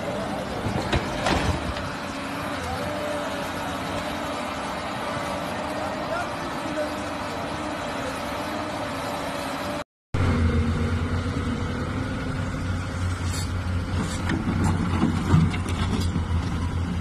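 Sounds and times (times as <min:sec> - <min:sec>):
excavator diesel engine humming: 0:00.0 - 0:17.0
dirt and stones clattering: 0:13.1 - 0:16.7.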